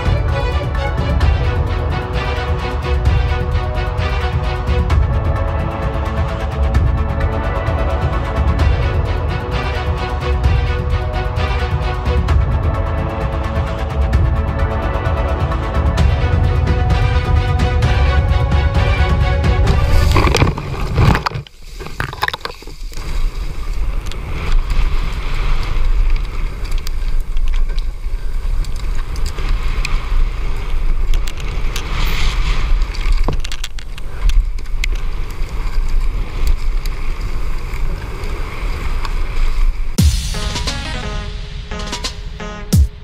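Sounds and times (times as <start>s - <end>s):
music: 0.0s - 20.4s, 40.0s - 43.0s
bike tyres rumbling on dirt: 19.6s - 40.0s
wind on camera: 19.6s - 40.0s.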